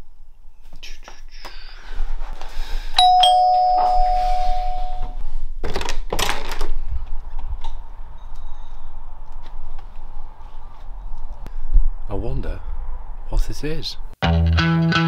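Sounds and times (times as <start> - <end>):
two-note doorbell chime: 3.0 - 5.2.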